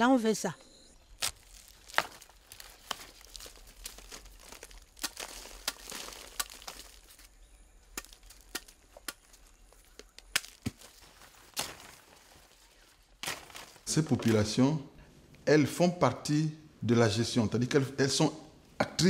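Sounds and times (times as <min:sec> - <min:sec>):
machete chopping plant stems: 0:01.2 - 0:07.3, 0:07.9 - 0:12.2, 0:13.2 - 0:14.4.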